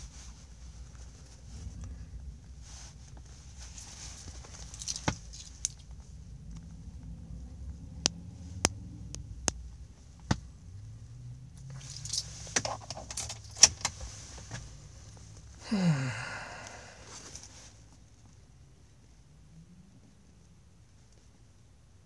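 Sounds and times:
metal keys jangling: 4.6s - 5.9s, 11.8s - 13.7s.

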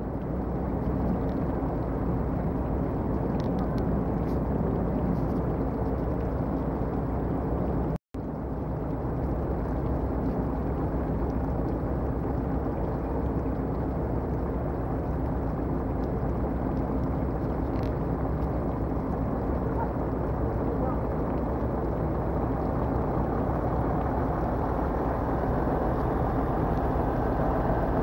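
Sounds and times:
ship engines rumbling: 0.0s - 28.0s.

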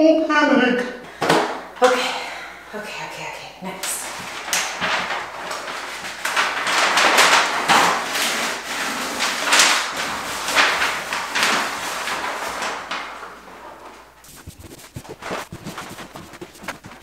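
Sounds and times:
wallpaper rustling and scraping: 3.7s - 17.0s.

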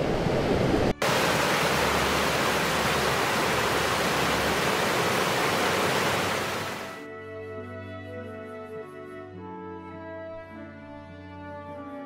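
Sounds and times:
water rushing over rocks: 1.0s - 7.0s.

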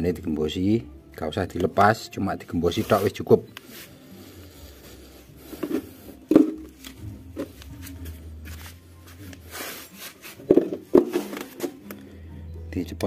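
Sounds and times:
knocks on concrete floor: 6.3s - 6.7s.

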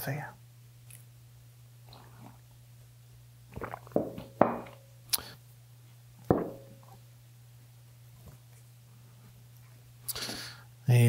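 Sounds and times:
low steady hum: 0.0s - 11.0s
ceramic mug set down: 4.0s - 4.8s, 6.3s - 6.8s
knocks on wooden workbench: 6.3s - 6.6s.

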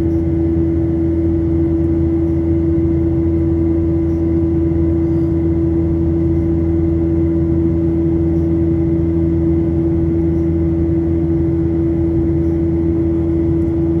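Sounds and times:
jet engine cabin drone: 0.0s - 14.0s.

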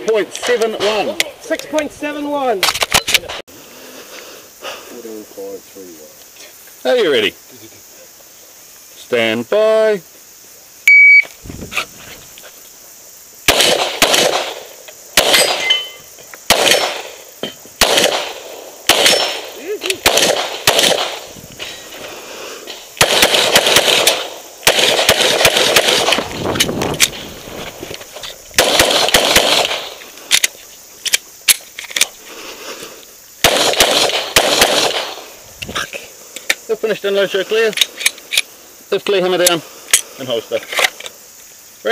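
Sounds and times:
shot timer beep: 10.9s - 11.3s
pistol shots echoing: 13.5s - 15.9s, 16.5s - 17.2s, 17.8s - 21.3s, 23.0s - 26.3s, 28.6s - 30.0s, 33.4s - 35.3s
handgun shots: 16.5s - 17.1s, 17.8s - 21.2s.

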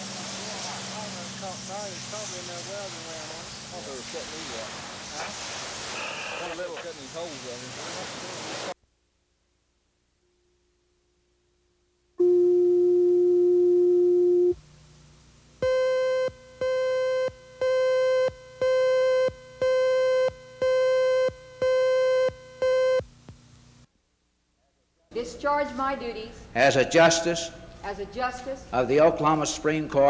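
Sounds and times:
steady pure tone: 0.0s - 8.8s, 11.8s - 22.2s.

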